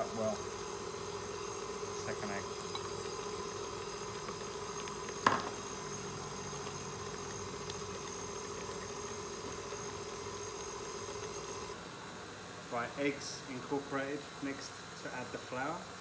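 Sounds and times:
stand mixer motor running: 0:00.0 - 0:11.8.

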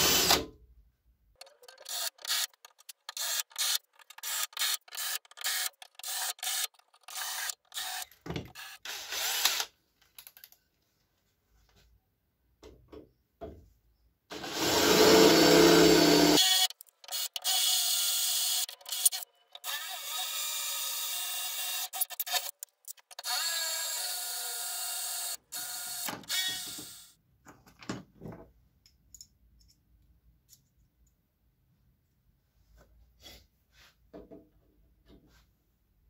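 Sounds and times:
cordless drill drilling into steel: 0:08.6 - 0:09.7, 0:14.3 - 0:22.4.

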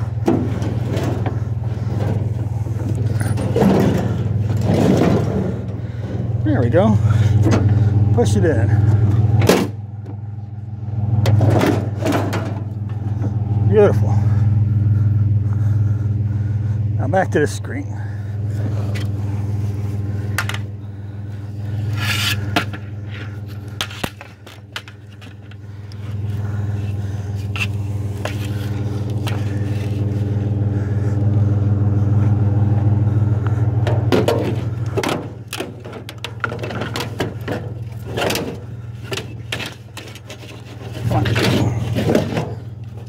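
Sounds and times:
metal frame scrapes and knocks: 0:00.0 - 0:06.4
engine idling: 0:00.0 - 0:43.0.

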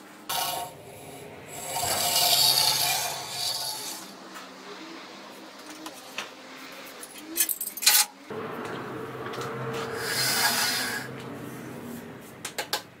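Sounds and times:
bandsaw wheels whirring: 0:00.3 - 0:04.3, 0:08.3 - 0:13.0
sharp clicks and knocks: 0:12.4 - 0:12.9.

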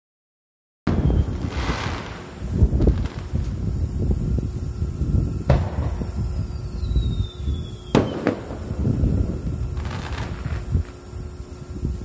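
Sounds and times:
firework bang: 0:00.9 - 0:04.6, 0:05.3 - 0:10.8
firework whistle falling: 0:00.9 - 0:11.0
firework shell burst: 0:00.9 - 0:11.1
firework crack: 0:00.9 - 0:12.0.

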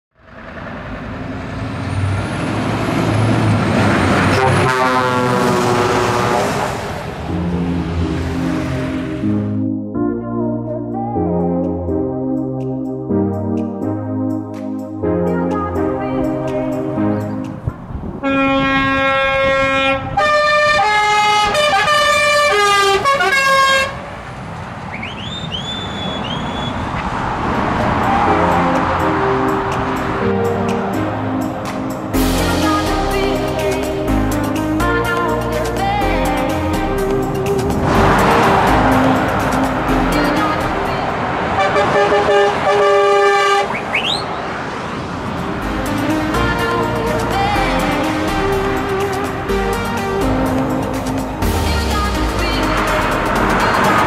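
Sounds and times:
truck passing at speed: 0:00.2 - 0:09.7, 0:15.9 - 0:54.0
truck air horn: 0:04.2 - 0:07.0, 0:18.2 - 0:24.1, 0:41.5 - 0:44.2
steady music notes: 0:04.3 - 0:19.1, 0:28.0 - 0:41.2, 0:45.6 - 0:54.0.

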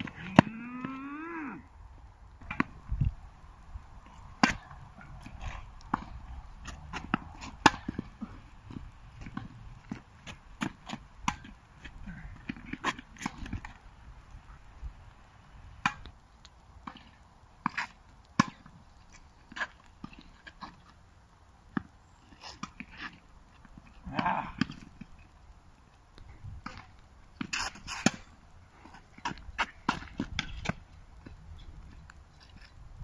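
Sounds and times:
racket hitting tennis ball: 0:00.0 - 0:01.0, 0:04.4 - 0:08.4, 0:09.2 - 0:11.5, 0:17.6 - 0:18.7, 0:29.2 - 0:30.8
tennis ball bouncing: 0:00.0 - 0:01.0, 0:04.4 - 0:13.8, 0:15.8 - 0:16.1, 0:16.8 - 0:18.7, 0:29.2 - 0:30.8.

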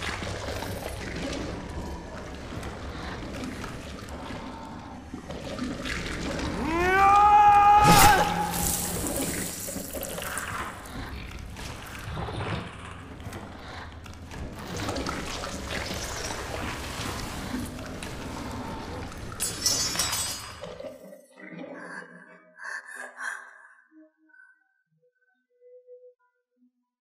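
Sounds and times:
low cave ambience: 0:00.0 - 0:26.7
rising screech: 0:06.6 - 0:09.4.

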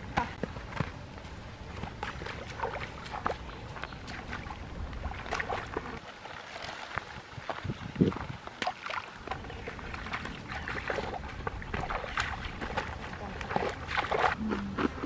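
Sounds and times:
muddy water splashing and sloshing: 0:00.0 - 0:15.0.

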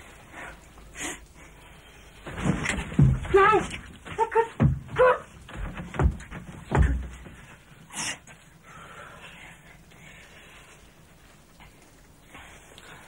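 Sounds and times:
breathy hiss: 0:00.0 - 0:02.4, 0:07.3 - 0:13.0
bodies thumping against wooden wall: 0:02.2 - 0:07.7.

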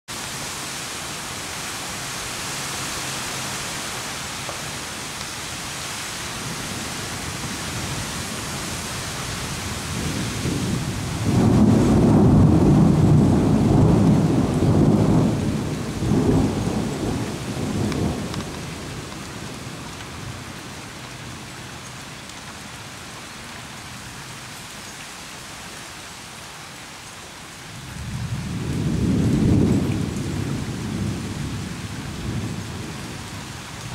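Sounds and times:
steady rain hiss: 0:00.1 - 0:33.9
rolling thunder rumble: 0:06.4 - 0:20.4, 0:27.9 - 0:33.9.

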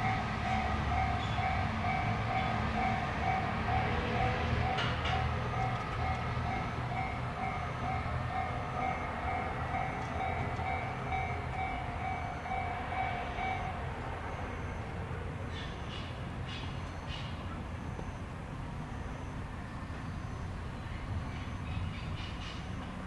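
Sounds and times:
diesel railcar moving off: 0:00.0 - 0:23.0.

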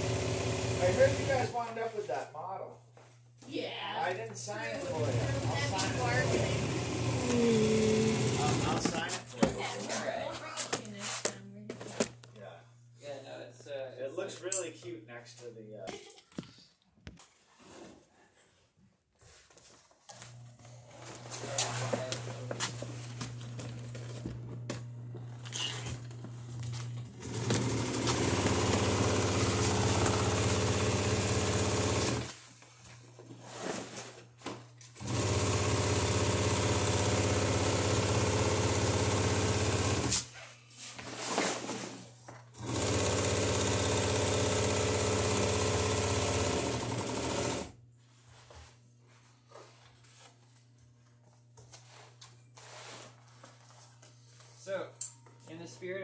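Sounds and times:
sewing machine stitching: 0:00.0 - 0:01.5, 0:04.7 - 0:09.1, 0:27.1 - 0:32.3, 0:35.0 - 0:40.2, 0:42.6 - 0:47.8.

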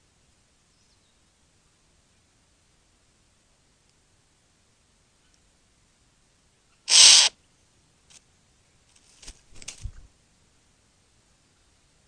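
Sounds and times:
bird harsh hissing call: 0:06.9 - 0:07.3
short scratchy bird sounds: 0:06.9 - 0:07.3.

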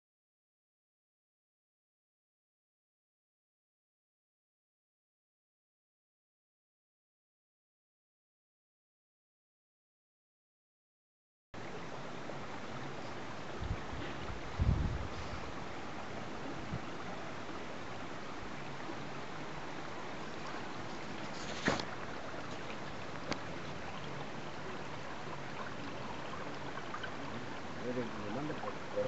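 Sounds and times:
water rushing in channel: 0:11.6 - 0:29.0
dull low thumps: 0:13.6 - 0:15.4.

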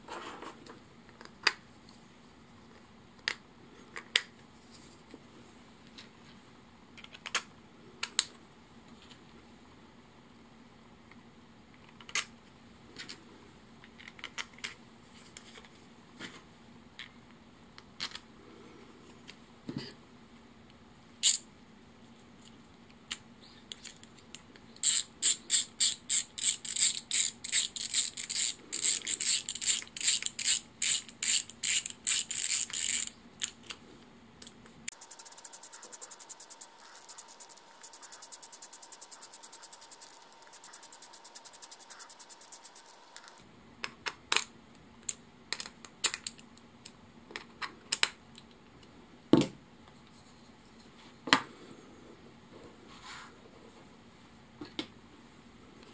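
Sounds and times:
parts being handled clicks: 0:34.4 - 0:43.4
faint steady tone: 0:34.9 - 0:43.4
fast thin ticking: 0:34.9 - 0:43.4
screwdriver ratchet clicks: 0:34.9 - 0:43.4.

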